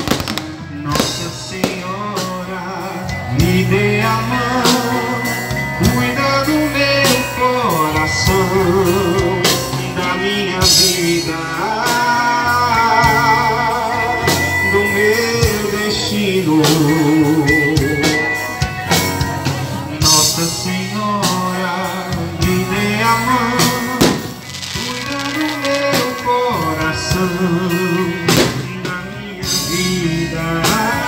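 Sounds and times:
live band with drums and keyboard: 0.0 - 31.0
person singing: 0.0 - 31.0.

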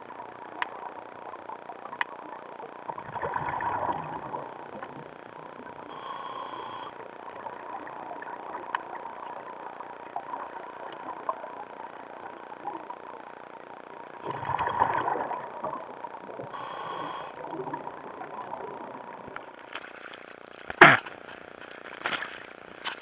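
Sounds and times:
muffled underwater hiss: 0.0 - 23.0
exhaled bubbles gurgling: 0.4 - 12.9, 14.1 - 19.4
inhalation hiss: 5.9 - 7.0, 16.5 - 17.6
scuba regulator breathing: 5.9 - 7.0, 16.5 - 17.6.

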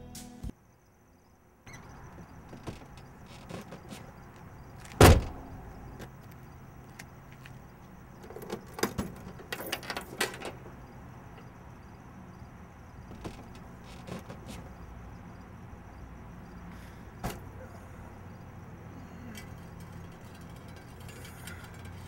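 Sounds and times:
car door slamming: 4.9 - 5.6
keys and latch clicking: 8.2 - 10.8.

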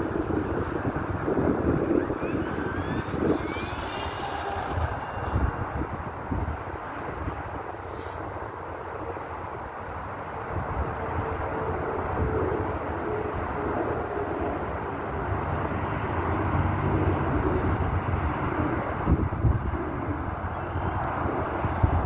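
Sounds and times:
wind buffeting microphone: 0.0 - 8.6, 16.0 - 22.0
distant model plane drone: 0.0 - 22.0.

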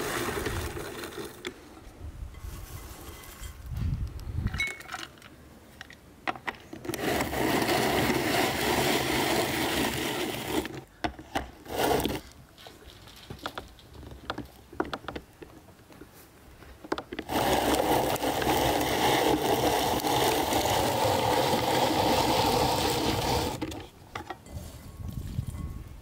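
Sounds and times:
drum grater grinding nuts: 6.8 - 10.8, 17.2 - 23.8.

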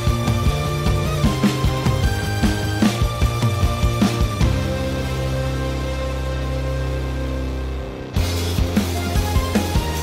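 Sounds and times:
steady drum beat: 0.0 - 5.4, 8.2 - 10.0
held bass line: 0.0 - 10.0.

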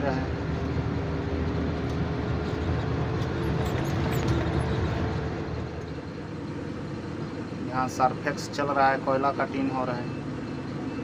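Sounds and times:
truck diesel engine from inside cab: 0.0 - 11.0.

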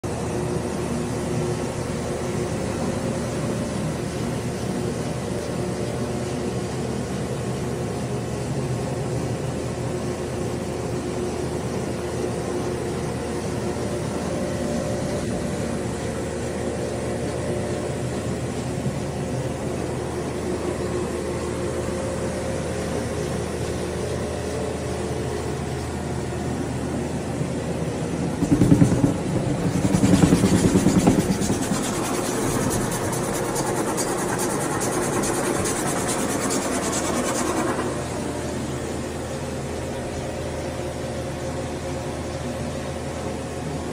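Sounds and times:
carpet extractor motor hum: 26.5 - 39.3.

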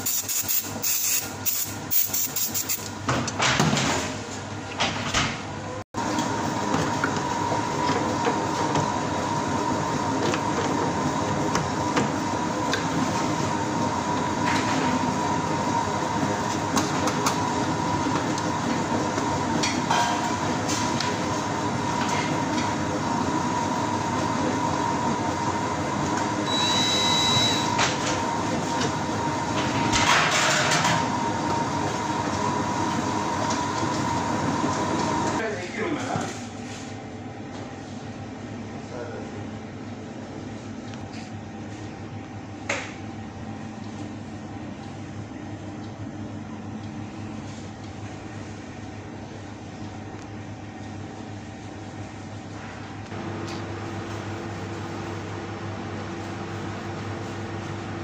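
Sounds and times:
fan humming: 5.5 - 58.0
brief high tone: 26.5 - 27.7.

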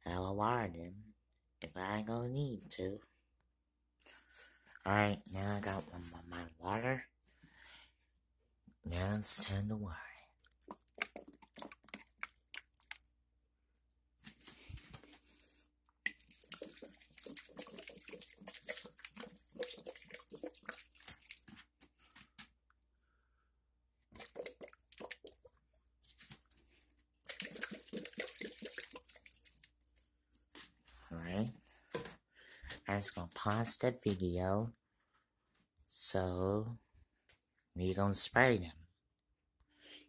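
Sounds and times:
water pouring onto soil: 16.1 - 21.6, 24.1 - 25.5, 27.2 - 30.1.

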